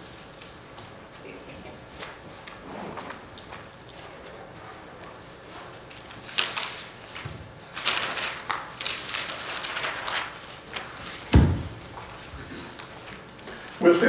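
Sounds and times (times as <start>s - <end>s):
book pages rustling: 0.0s - 14.0s
dull thump: 11.3s - 11.8s.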